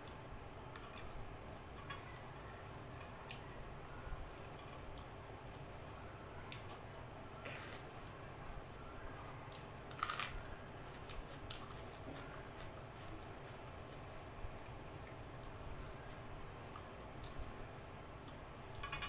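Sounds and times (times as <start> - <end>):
scrape on plate: 7.4 - 7.9.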